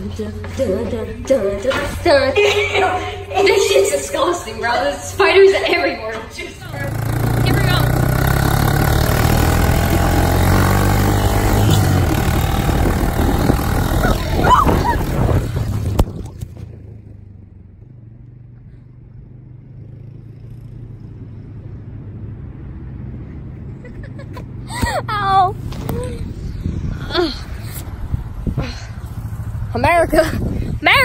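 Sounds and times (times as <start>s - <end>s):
small engine running: 6.6s - 16.9s.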